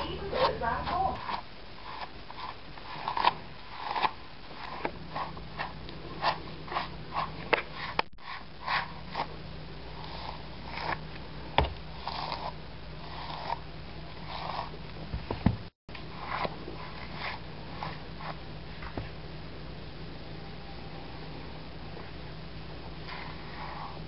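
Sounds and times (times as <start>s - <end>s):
brush scratchy swishes: 16.1s - 18.4s, 23.1s - 24.0s.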